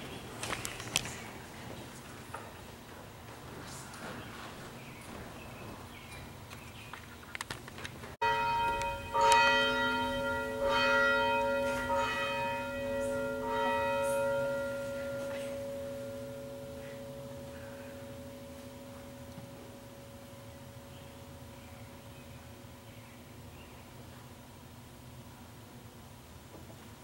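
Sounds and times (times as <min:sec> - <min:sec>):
church bell ringing: 0:08.2 - 0:24.1.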